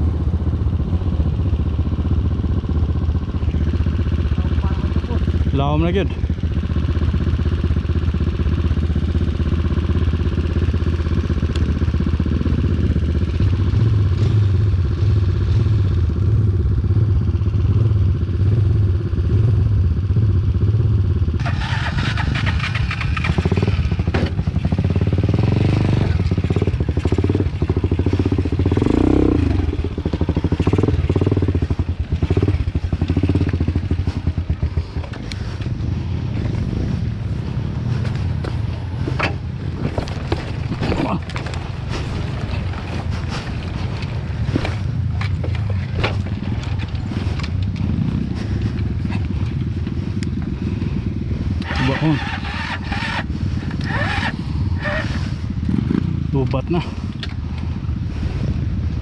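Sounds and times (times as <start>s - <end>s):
motorcycle engine running: 0.0s - 59.0s
clatter and knocks: 39.1s - 47.9s.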